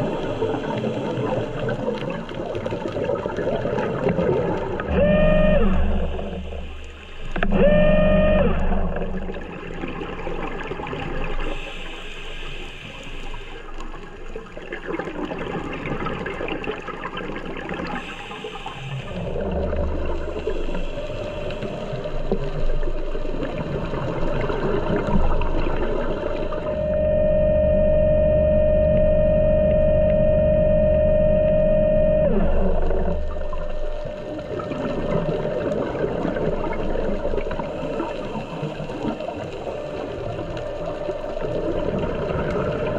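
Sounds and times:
underwater bubbles gurgling: 0.0 - 42.9
electric motor whine: 26.4 - 35.2
regulator exhaust: 26.6 - 34.1.

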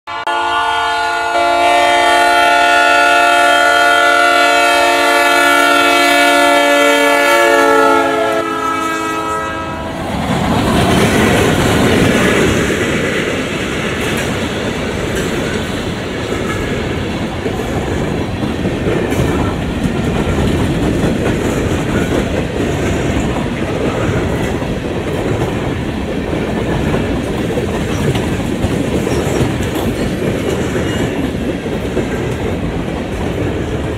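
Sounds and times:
locomotive air horn: 0.1 - 10.1
train cars rumbling and clacking: 1.8 - 33.9.

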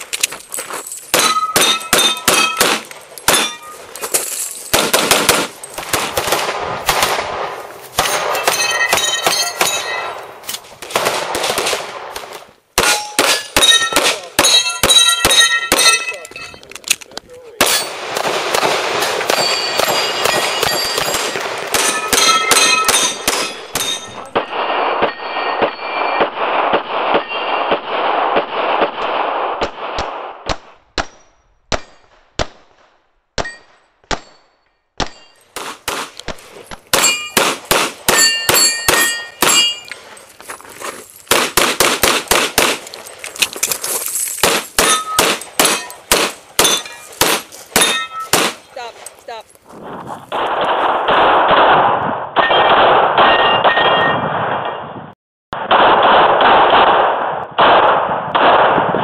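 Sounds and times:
steel plates clanging: 0.8 - 4.7, 19.4 - 24.4, 37.0 - 37.4, 38.1 - 40.3, 43.0 - 48.9
pistol shots: 1.1 - 3.8, 4.7 - 16.2, 17.6 - 39.9, 41.3 - 43.0, 44.4 - 48.7, 50.3 - 54.9, 55.6 - 59.0.

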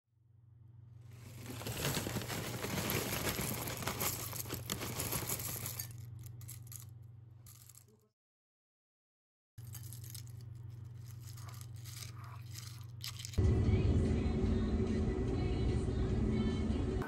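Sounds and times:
cereal flakes poured from rustling bag: 1.1 - 6.8, 9.6 - 13.4
steady low hum: 9.7 - 17.0.

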